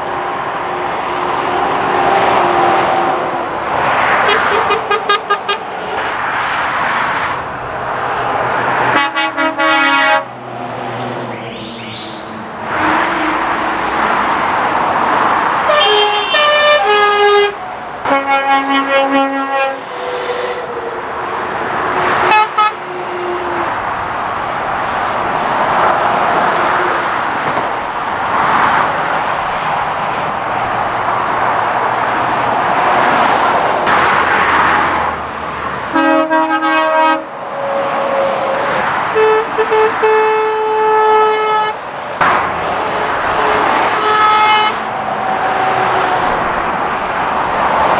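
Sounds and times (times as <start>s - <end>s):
lorries passing at speed: 0.0s - 47.9s
lorry horn blasts: 9.0s - 10.3s, 15.7s - 19.9s, 36.0s - 38.6s, 39.2s - 41.8s, 42.9s - 44.8s.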